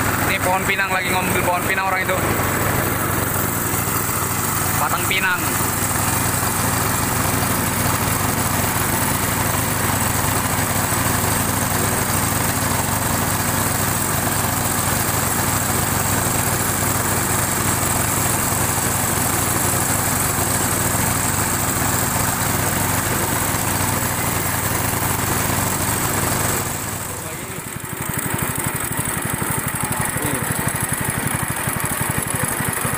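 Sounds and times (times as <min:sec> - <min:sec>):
boat engine droning: 0:00.0 - 0:08.4.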